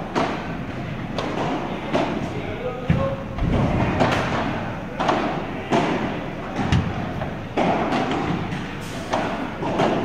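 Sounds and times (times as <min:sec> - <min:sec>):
padel ball hit with rackets: 0:07.6 - 0:10.0.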